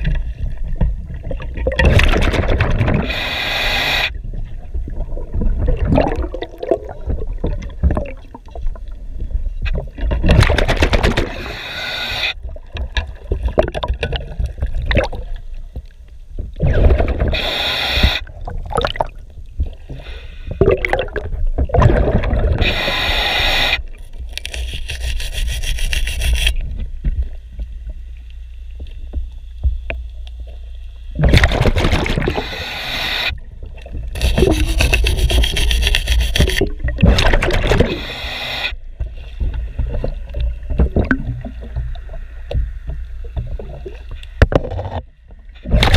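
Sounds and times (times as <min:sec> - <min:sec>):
scuba regulator bubbles rushing: 0:00.0 - 0:03.3, 0:04.2 - 0:09.0, 0:12.5 - 0:15.4, 0:18.2 - 0:19.2, 0:20.6 - 0:22.9, 0:31.2 - 0:32.8, 0:33.6 - 0:38.2, 0:39.5 - 0:42.2, 0:45.6 - 0:45.9
underwater scraping and clicking: 0:00.0 - 0:08.9, 0:09.6 - 0:20.0, 0:20.6 - 0:45.9.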